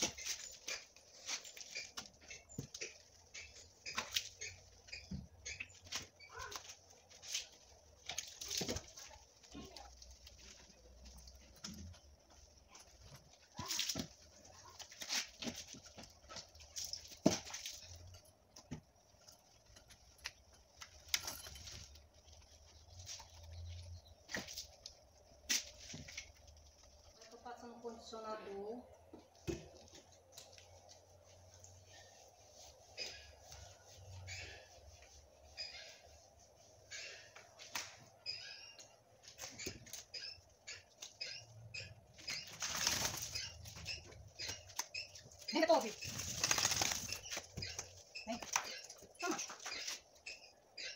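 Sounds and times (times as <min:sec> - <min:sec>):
small birds chirping: 0:00.0 - 0:50.9
metal chain clinking: 0:19.2 - 0:22.2
wet fur rustling: 0:29.3 - 0:38.2.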